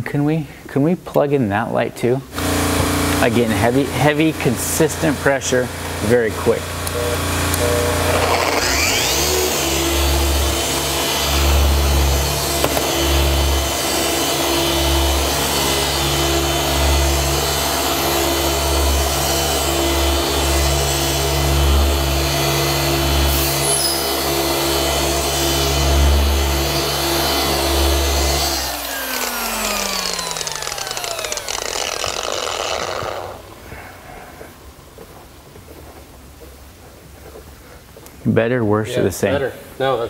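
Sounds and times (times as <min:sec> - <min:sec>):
polisher humming: 0:02.4 - 0:33.8.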